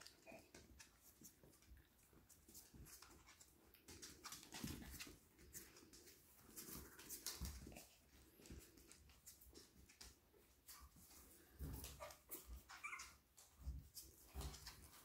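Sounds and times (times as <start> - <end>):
soft rustling: 0.0 - 15.0.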